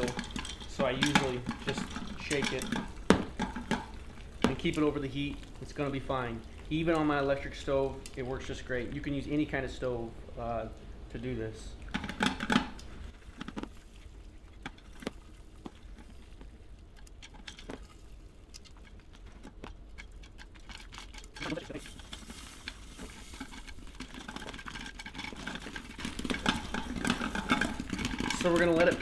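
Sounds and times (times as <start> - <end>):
pot shaken on burner: 0.0 - 5.0, 19.9 - 29.0
popcorn kernels popping: 0.0 - 5.6, 19.4 - 29.0.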